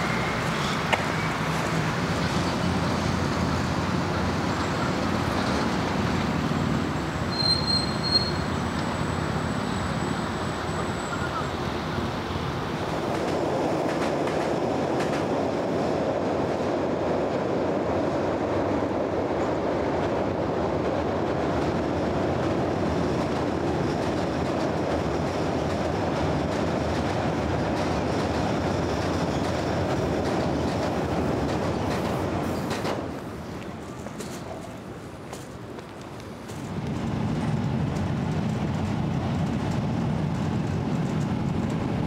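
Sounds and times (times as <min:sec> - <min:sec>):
train wheels rumbling on bridge: 0:00.0 - 0:42.0.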